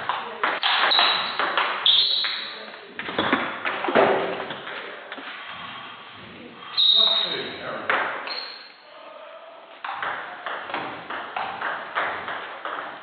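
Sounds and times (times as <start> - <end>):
high squeak: 0.8 - 2.6, 6.7 - 7.6, 8.3 - 9.0.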